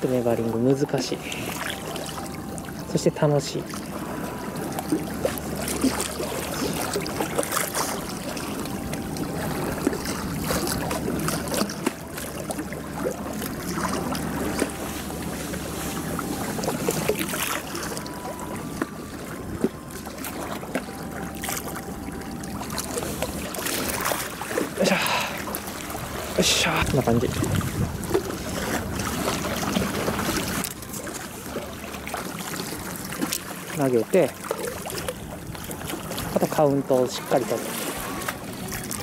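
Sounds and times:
low steady hum: 0.0s - 39.0s
sea water washing: 0.0s - 39.0s
wind on microphone: 26.0s - 30.6s.

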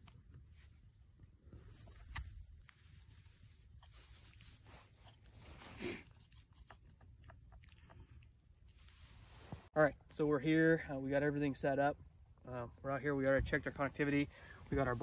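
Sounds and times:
small clicks and scratchy rubs: 1.6s - 9.7s.

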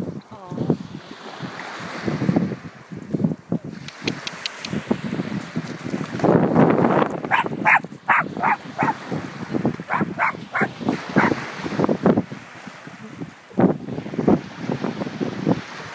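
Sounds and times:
wind buffeting microphone: 0.0s - 15.9s
small waves washing in: 0.6s - 3.1s, 3.7s - 15.9s
small dog yapping: 7.2s - 9.0s, 9.9s - 11.4s.

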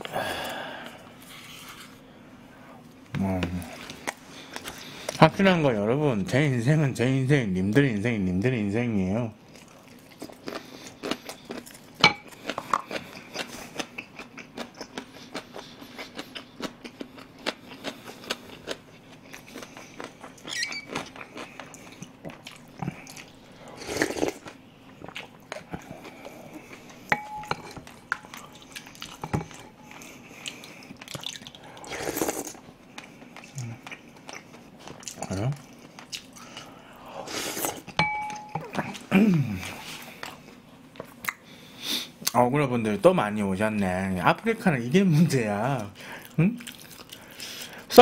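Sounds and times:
chewing with wet mouth clicks: 9.5s - 23.4s, 24.2s - 31.9s, 32.9s - 36.7s, 40.2s - 41.5s, 46.2s - 47.6s
chopsticks tapping bowl: 27.1s - 28.4s, 38.0s - 38.9s.

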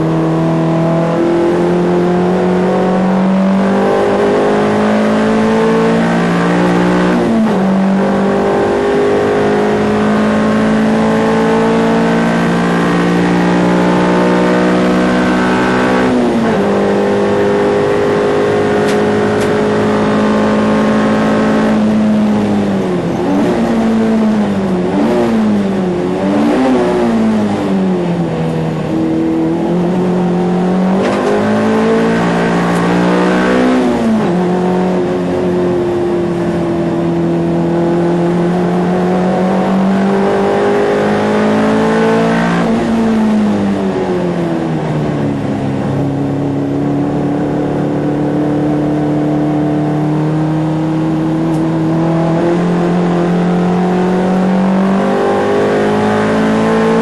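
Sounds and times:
race car engine under hard driving: 0.0s - 57.0s.

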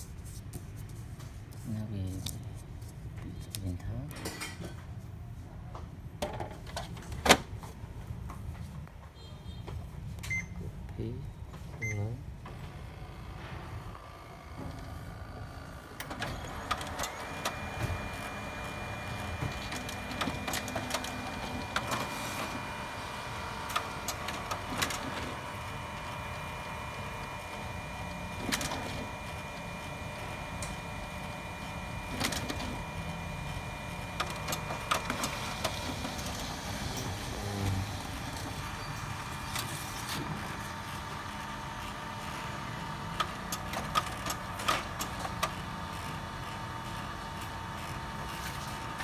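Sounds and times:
printer motors whining: 12.4s - 49.0s.

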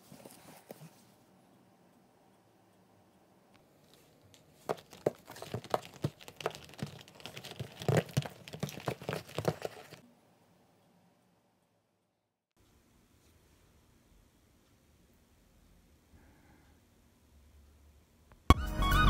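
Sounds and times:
oranges rummaged in cardboard box: 4.6s - 10.0s.

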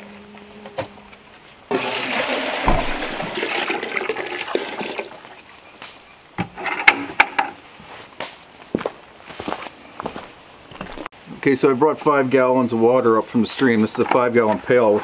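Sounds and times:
water pouring into metal pail: 1.7s - 5.2s
thump: 2.6s - 3.3s.

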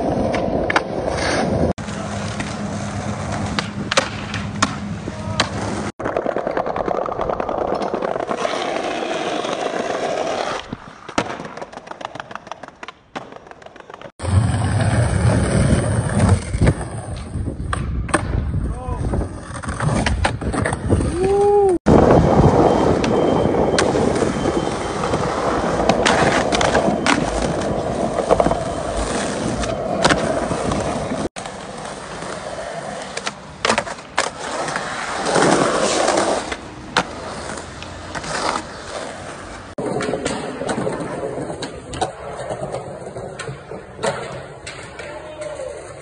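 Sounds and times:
skateboards rolling on concrete: 0.0s - 46.0s
skateboard tails clacking: 1.8s - 9.9s, 19.8s - 46.0s.

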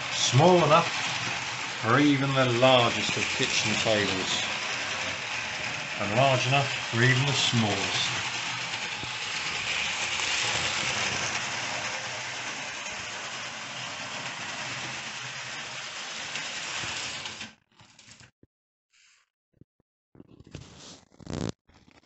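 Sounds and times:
model train motor whirring: 0.0s - 17.5s
model train wheels rattling: 0.0s - 17.5s.

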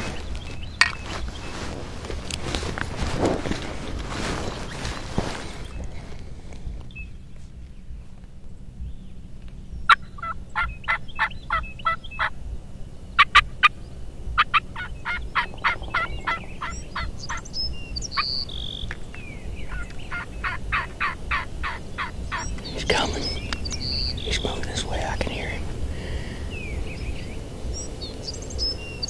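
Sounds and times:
turkey yelping: 9.9s - 12.3s, 14.4s - 17.5s, 19.7s - 24.4s.

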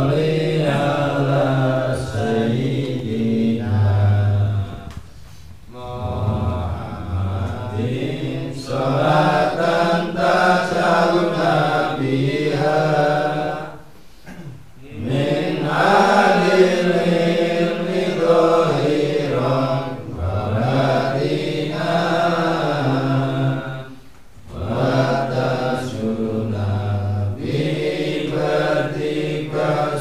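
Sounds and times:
men chanting slowly: 0.0s - 5.0s, 5.7s - 13.9s, 14.8s - 30.0s.

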